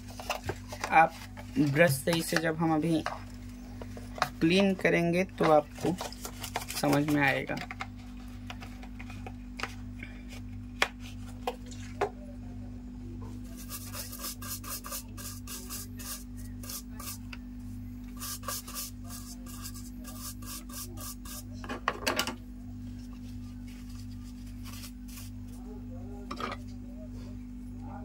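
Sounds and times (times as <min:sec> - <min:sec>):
steady low hum: 0:00.0 - 0:28.0
small brush scrubbing: 0:13.4 - 0:17.4, 0:18.0 - 0:21.5, 0:22.8 - 0:25.6.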